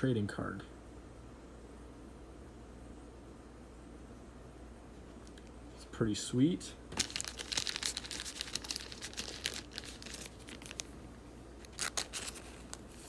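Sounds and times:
plastic crinkling: 6.9 - 13.0.

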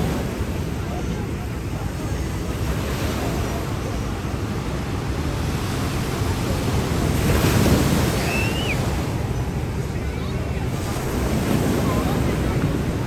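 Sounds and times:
ocean surf washing on beach: 0.0 - 13.0
wind buffeting microphone: 0.0 - 13.0.

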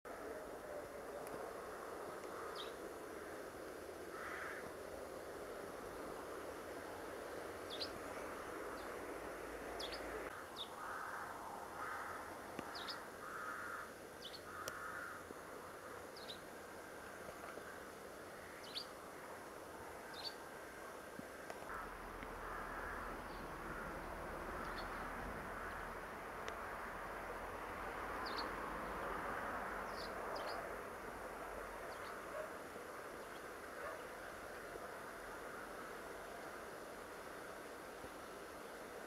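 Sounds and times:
faint steady hum: 0.1 - 39.0
harsh raspy bird calls: 4.1 - 4.6.

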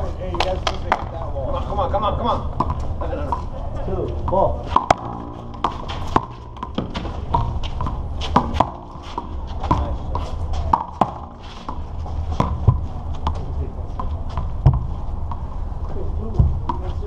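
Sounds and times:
low steady rumble: 0.0 - 17.0
rubber ball smacking wall: 4.8 - 8.8.

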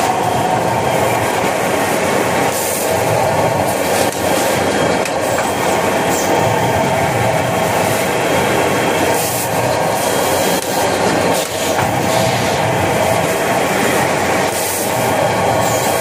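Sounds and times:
machine hissing: 0.0 - 16.0
packing machine clattering: 9.1 - 16.0.

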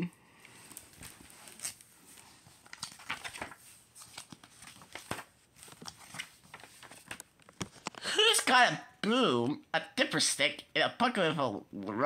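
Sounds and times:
book pages rustling and turning: 0.5 - 8.1.

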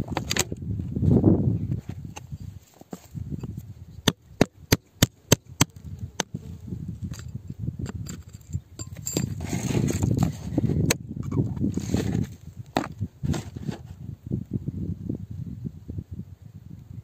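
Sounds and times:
metal pick scraping rock: 7.0 - 13.9
metal pick clicking on rock: 7.1 - 9.4.

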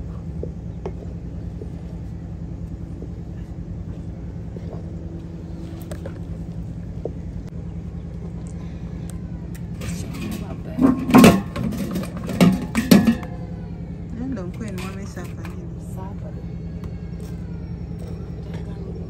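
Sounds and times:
steady low rumble: 0.0 - 19.0
stick scraping a metal saucepan: 9.8 - 13.3.

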